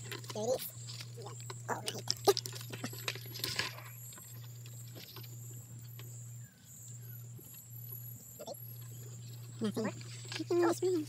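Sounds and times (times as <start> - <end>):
faint rustles and ticks: 0.0 - 11.0
low steady hum: 0.0 - 11.0
night insects trilling: 0.0 - 11.0.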